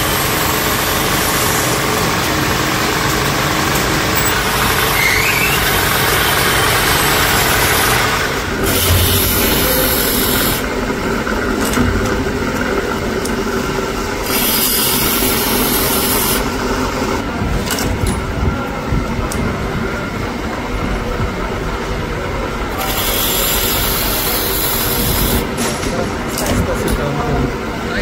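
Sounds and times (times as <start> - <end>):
grinding machine running: 0.0 - 17.2.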